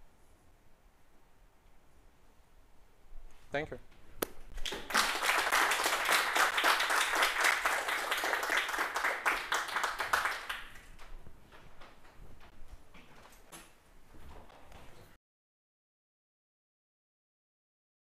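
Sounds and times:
audience applauding: 0:04.6 - 0:10.9.

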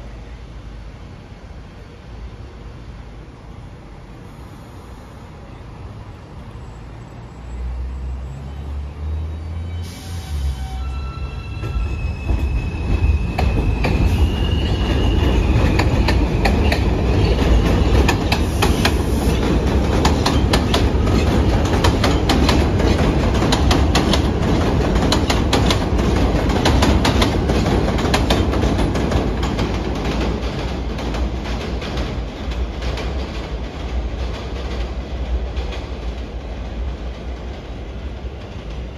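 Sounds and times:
rising train whine: 0:00.0 - 0:38.9
train rumble on steel structure: 0:08.3 - 0:38.9
wheel clacks over rail joints: 0:15.6 - 0:36.2.

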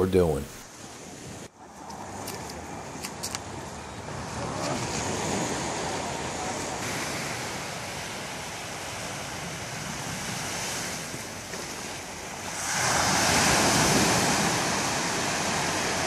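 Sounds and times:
wind on microphone: 0:03.6 - 0:16.0
waves washing over stony beach: 0:03.9 - 0:16.0.

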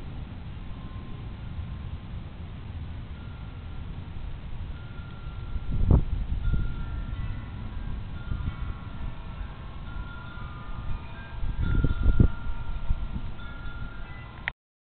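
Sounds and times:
storm wind: 0:00.0 - 0:14.5
wind chimes ringing: 0:03.1 - 0:04.0, 0:04.7 - 0:14.5.

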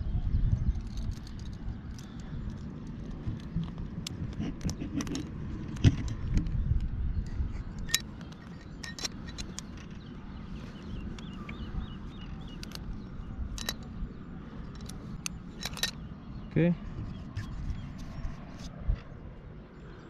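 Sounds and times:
steady low rumble: 0:00.0 - 0:20.0
climbing hardware clinking: 0:00.7 - 0:06.6, 0:07.7 - 0:16.2
sharp clicks: 0:07.8 - 0:10.2, 0:10.8 - 0:14.0.

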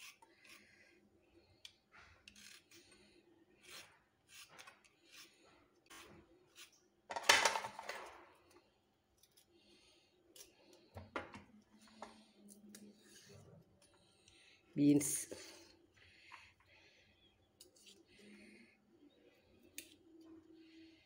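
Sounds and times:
peeler scraping carrot: 0:00.0 - 0:00.8, 0:02.2 - 0:06.8.

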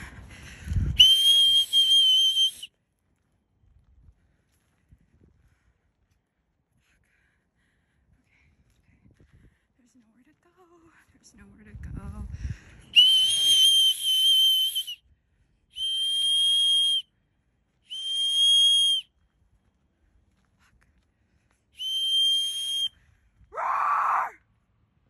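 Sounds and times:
high-pitched whistle blasts: 0:01.0 - 0:02.7, 0:13.0 - 0:15.0, 0:17.9 - 0:19.1, 0:21.8 - 0:23.0.

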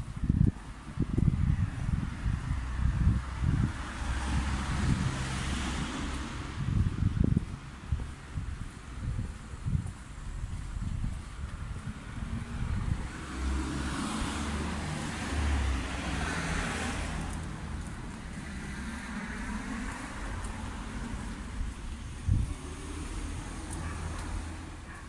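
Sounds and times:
low rumble of traffic: 0:00.0 - 0:25.0
car driving past: 0:12.0 - 0:24.9.

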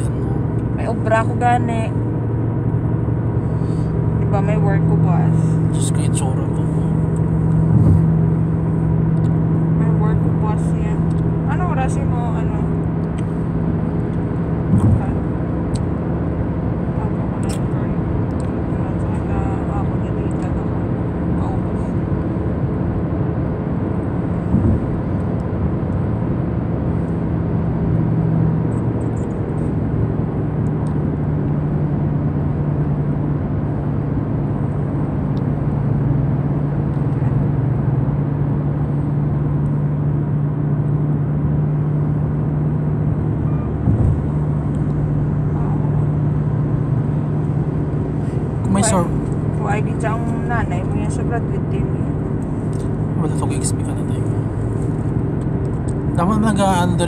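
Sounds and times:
low hum: 0:00.0 - 0:57.0
tyre and engine drone: 0:00.0 - 0:57.0.

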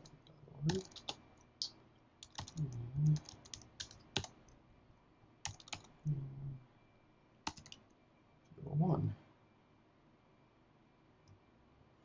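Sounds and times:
computer keyboard typing: 0:00.0 - 0:01.2, 0:02.2 - 0:04.6, 0:05.4 - 0:06.0, 0:07.4 - 0:07.9
low hum: 0:02.5 - 0:03.3.

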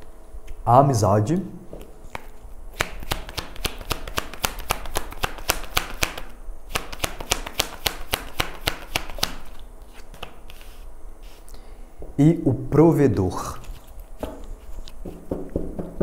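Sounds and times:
cards shuffling and snapping: 0:01.8 - 0:10.8, 0:13.6 - 0:15.2.

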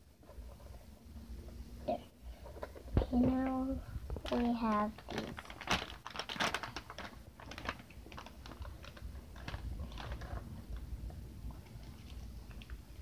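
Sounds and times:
toy package clicks and rustles: 0:04.1 - 0:10.8.

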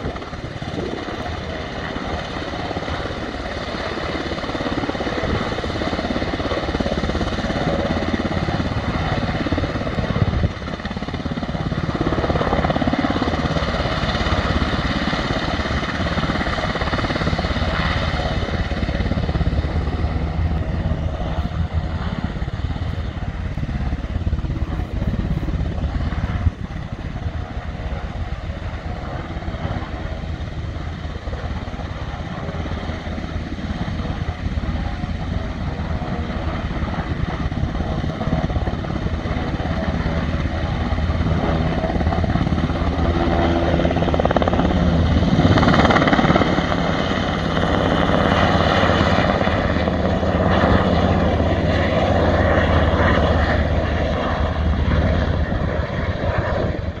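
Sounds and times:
helicopter taking off: 0:00.0 - 0:57.0.

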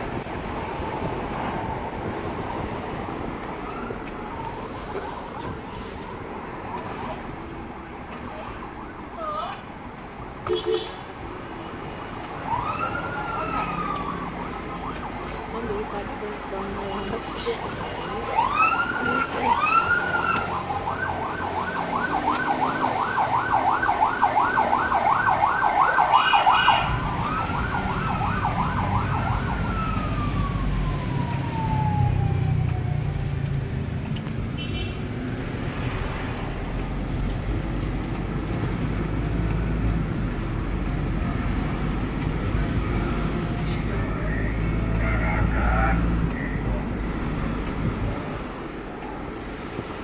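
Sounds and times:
vehicle driving rumble: 0:00.0 - 0:50.0.

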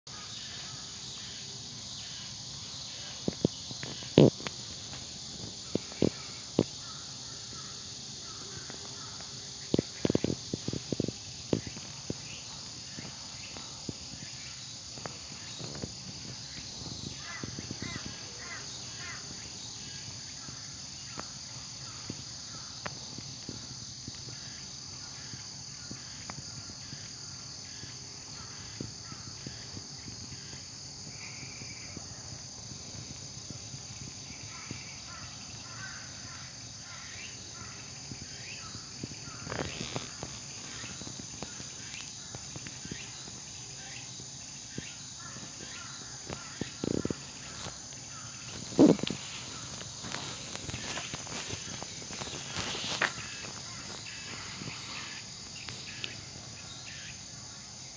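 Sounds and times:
insect chorus buzzing: 0:00.1 - 0:57.9
faint chirps and clicks: 0:03.1 - 0:20.3, 0:21.0 - 0:57.1.

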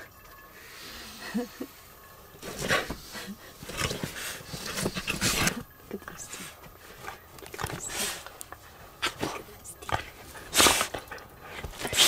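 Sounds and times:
bedding rustling: 0:02.3 - 0:12.0
dog sniffing: 0:06.2 - 0:12.0.

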